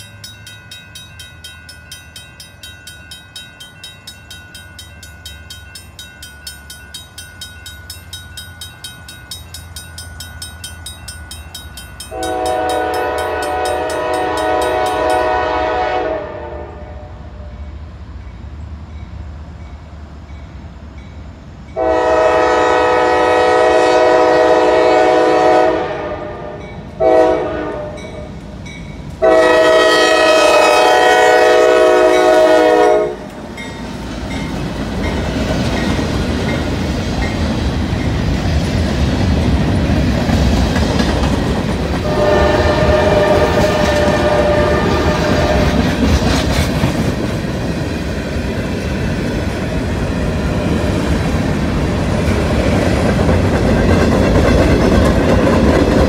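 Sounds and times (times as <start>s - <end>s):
wheels clacking on rail: 0.0s - 16.0s, 26.6s - 56.0s
locomotive horn blasts: 12.1s - 17.6s, 21.8s - 28.3s, 29.2s - 33.4s, 42.0s - 45.8s.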